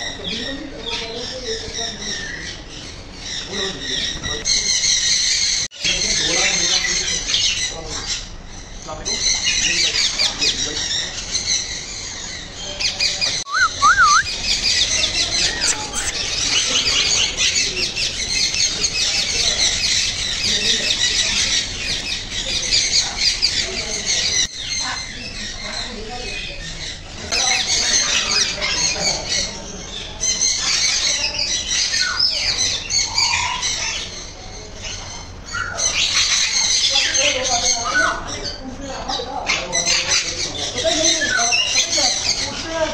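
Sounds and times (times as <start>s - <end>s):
parakeets squawking and screeching: 0.0s - 42.9s
parrots chirping: 0.0s - 42.9s
falling whistle: 13.5s - 14.3s
up-and-down whistles: 13.5s - 14.3s.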